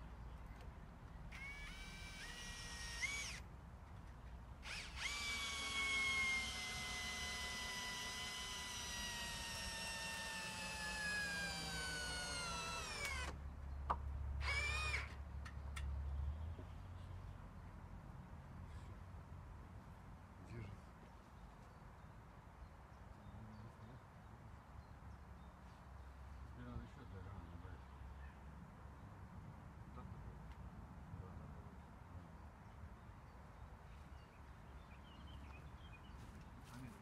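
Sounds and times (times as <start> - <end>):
power drill whining: 1.3 - 3.4, 4.6 - 13.4, 14.4 - 15.2.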